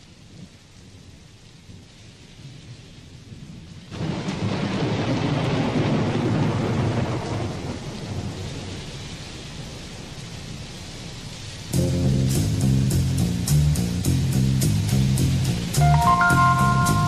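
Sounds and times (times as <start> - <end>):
rain falling: 0.0 - 17.0
thunder rumbling: 3.9 - 8.8.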